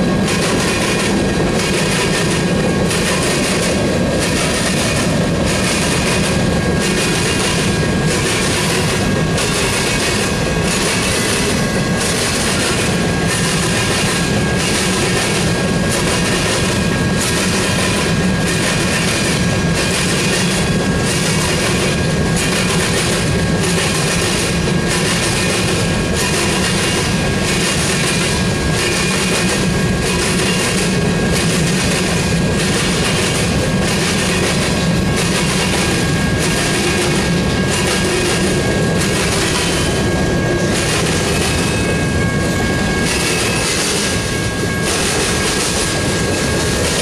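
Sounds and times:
rhythmic wheel clatter: 0:00.0 - 0:47.0
train wheels rumbling on rail: 0:00.0 - 0:47.0
thin steady ringing tone: 0:32.3 - 0:47.0.

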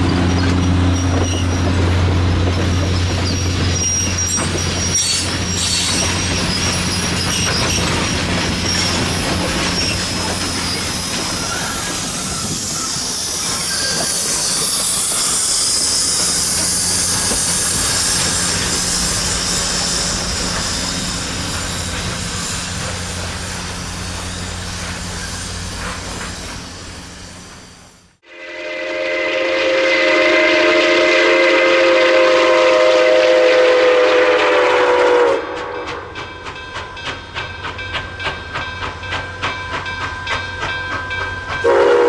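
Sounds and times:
train wheels rattling on rails: 0:00.0 - 0:28.2, 0:31.6 - 0:42.0
steam locomotive hiss: 0:02.8 - 0:35.8.

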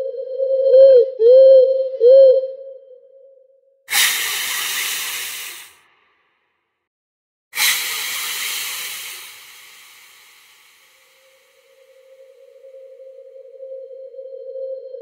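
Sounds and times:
loud hisses: 0:03.9 - 0:05.8, 0:07.6 - 0:12.0.

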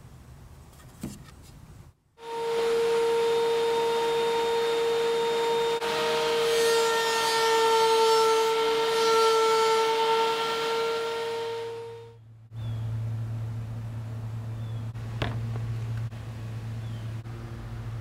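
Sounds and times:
hiss of planer cutting wood: 0:02.2 - 0:12.0
thickness planer whining: 0:02.2 - 0:12.2.

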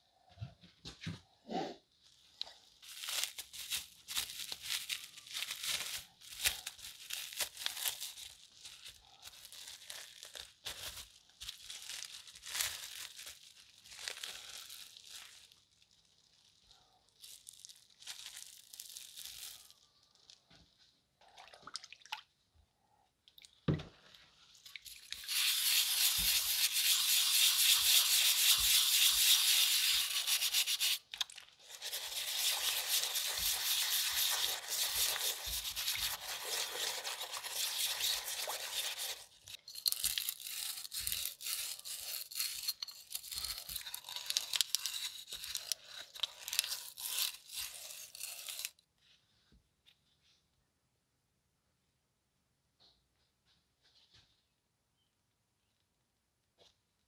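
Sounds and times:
plastic wrapping crinkling: 0:02.0 - 0:20.5, 0:24.5 - 0:48.8
wet rubber gloves rubbing: 0:02.8 - 0:15.3, 0:24.8 - 0:48.8
stiff brush scrubbing metal: 0:25.2 - 0:31.0, 0:31.6 - 0:39.5.

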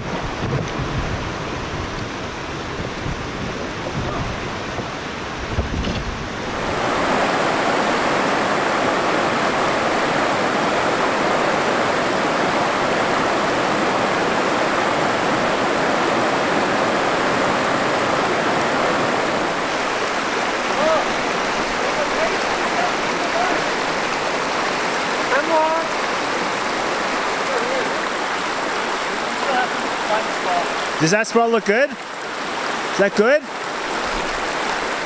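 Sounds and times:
wind rumbling on microphone: 0:00.0 - 0:25.3
rushing river water: 0:00.0 - 0:35.0
rapids pouring over rock ledge: 0:06.4 - 0:35.0.

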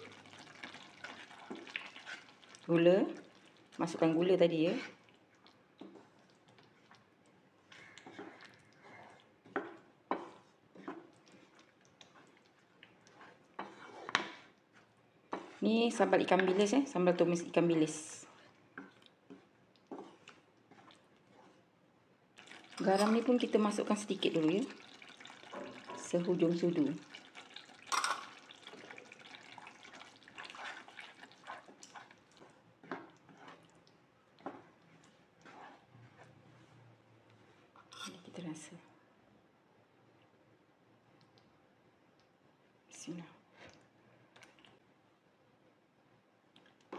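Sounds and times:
wooden spatula scraping a pan: 0:00.6 - 0:02.6, 0:04.0 - 0:05.0, 0:07.7 - 0:16.8, 0:17.9 - 0:21.7, 0:22.6 - 0:26.8, 0:28.0 - 0:33.7, 0:34.4 - 0:38.2.

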